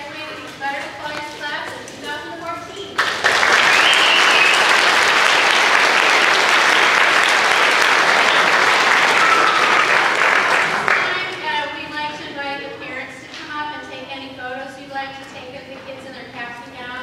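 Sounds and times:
audience applauding: 3.0 - 11.3.

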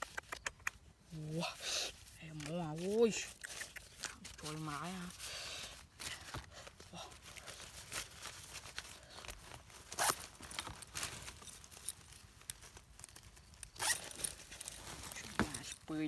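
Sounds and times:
small clicks: 0.0 - 0.8
fabric bag rustling: 4.0 - 16.0.

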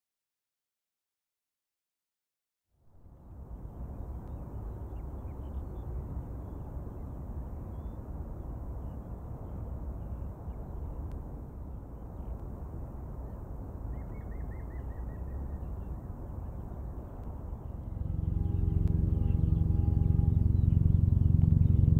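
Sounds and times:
low outdoor rumble: 2.9 - 21.9
faint bird chirps: 13.2 - 16.9.

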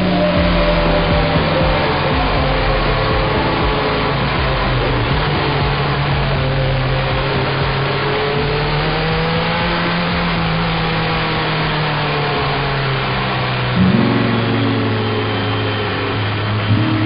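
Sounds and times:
motorcycle engine running: 0.0 - 17.0
wind and road noise: 0.0 - 17.0.

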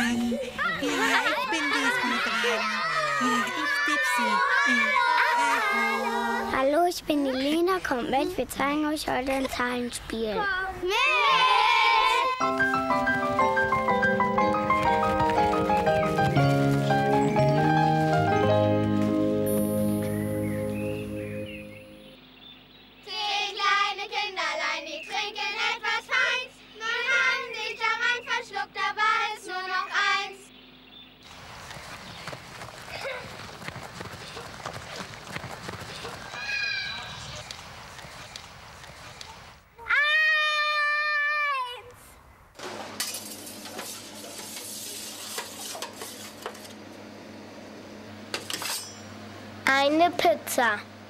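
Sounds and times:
faint outdoor background noise: 0.0 - 51.0
metal pan and utensils clinking: 48.4 - 49.1.

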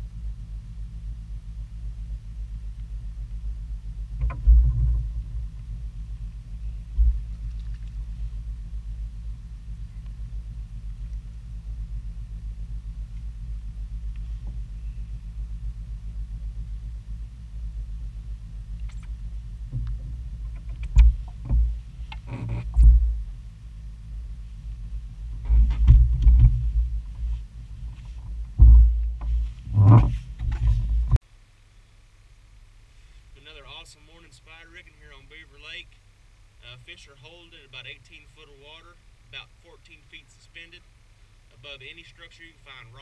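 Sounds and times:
low rumble: 0.0 - 31.2
thumps and knocks on boat: 4.2 - 5.2.

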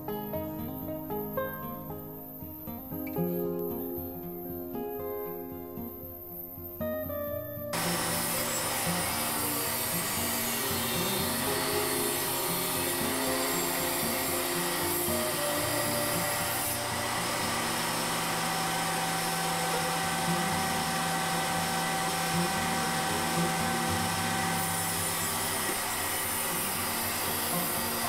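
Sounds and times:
background music: 0.0 - 28.0
table saw cutting wood: 7.8 - 28.0.

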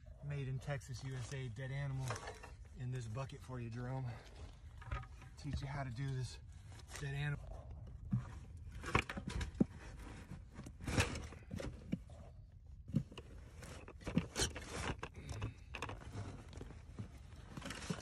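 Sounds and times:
scraping in fiberglass insulation: 0.2 - 12.4.

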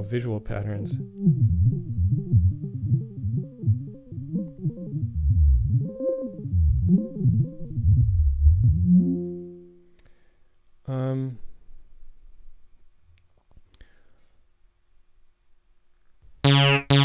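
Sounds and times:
bass synthesizer notes: 0.0 - 9.8, 16.4 - 17.0.

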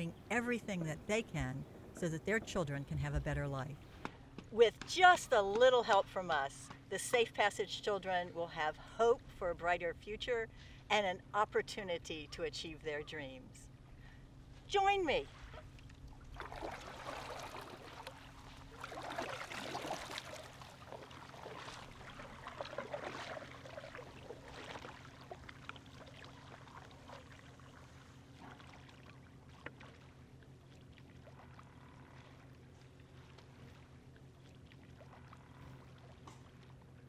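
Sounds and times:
kayak paddle splashing: 14.8 - 37.0.

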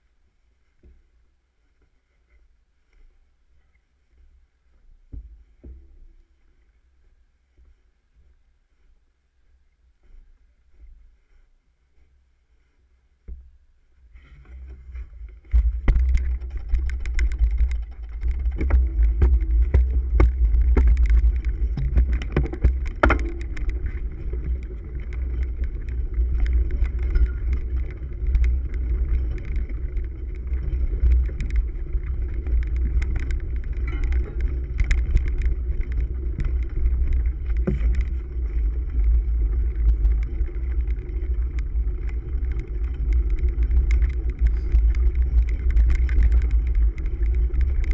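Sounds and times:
wind and frame vibration rumble: 9.6 - 47.9
bike knocks and rattles: 14.7 - 47.9.

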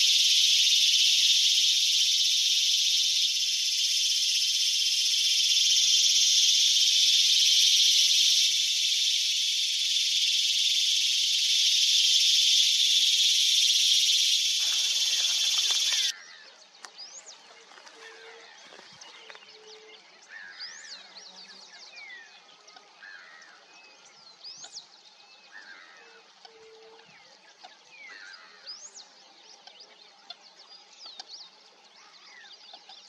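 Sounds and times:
waterbirds whistling calls: 0.0 - 21.2.

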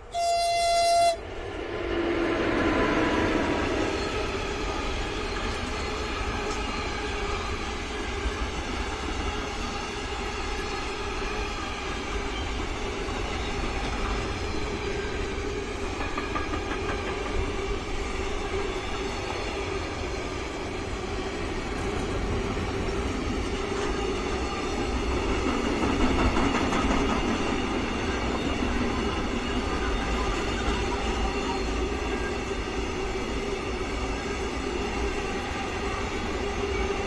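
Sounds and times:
freight train wheels clattering: 15.5 - 17.9, 21.7 - 31.3.

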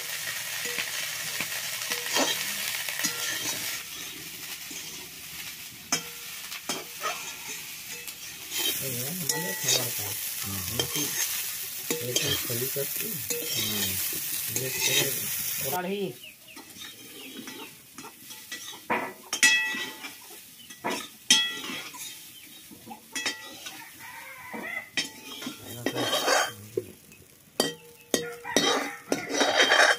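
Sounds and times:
vegetables sizzling in hot oil: 0.0 - 29.9
metal spatula scraping wok: 0.1 - 26.7, 27.6 - 29.9
metallic clinks against wok: 3.0 - 3.7, 5.9 - 15.2, 16.6 - 22.3, 23.1 - 23.8, 25.0 - 26.6, 27.6 - 29.9.

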